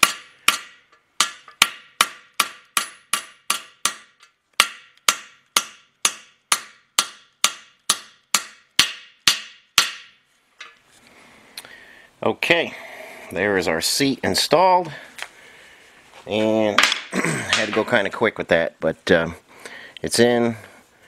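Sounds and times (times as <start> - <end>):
hammer striking metal: 0.0 - 10.8.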